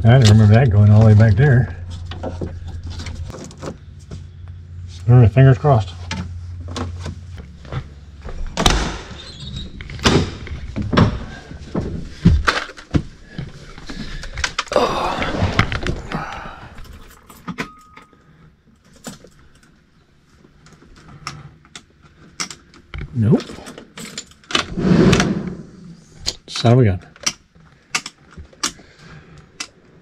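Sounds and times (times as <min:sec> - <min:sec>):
clicks and clattering of parts: 0:09.8 - 0:14.8, 0:20.4 - 0:24.7, 0:26.2 - 0:30.0.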